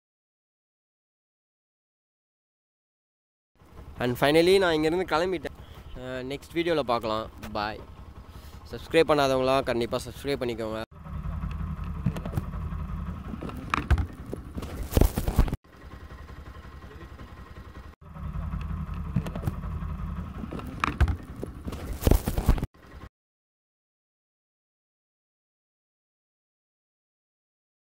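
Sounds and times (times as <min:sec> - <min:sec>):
motorcycle engine idling: 0:03.6 - 0:23.1.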